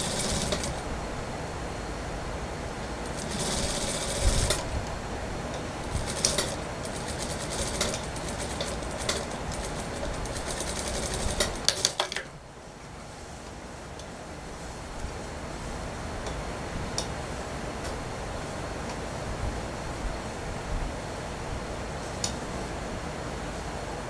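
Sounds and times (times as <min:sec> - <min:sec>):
sewing machine stitching: 0:00.0 - 0:00.8, 0:03.1 - 0:04.7, 0:05.9 - 0:12.2.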